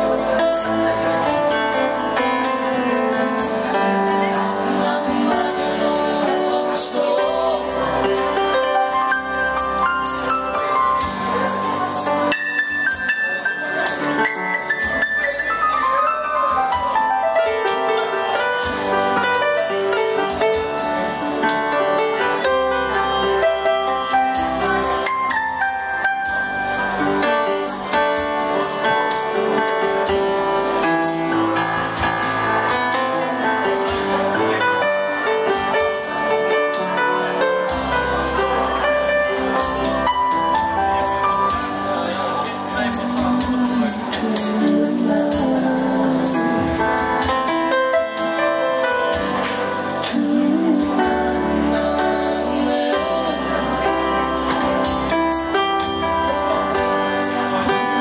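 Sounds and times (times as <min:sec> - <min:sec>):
keyboard melody and chords: 0:00.0 - 0:58.0
man singing into microphone: 0:04.5 - 0:09.0, 0:42.1 - 0:47.3, 0:49.8 - 0:55.0, 0:57.4 - 0:58.0.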